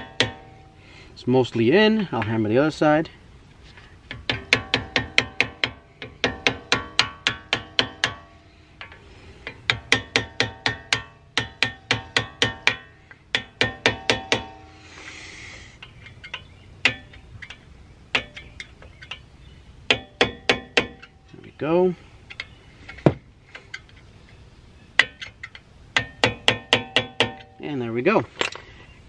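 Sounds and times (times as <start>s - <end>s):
hammer tapping metal pin: 15.8s - 19.2s.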